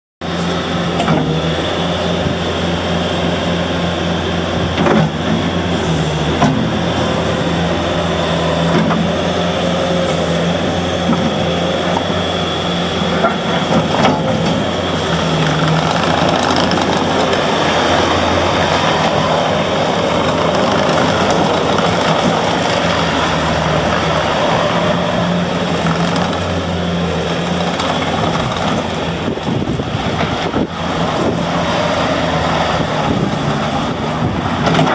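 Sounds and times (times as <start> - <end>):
diesel engine running: 0.2 - 34.9
metal clanks from loader tracks: 0.4 - 1.6, 13.1 - 24.3, 34.6 - 34.9.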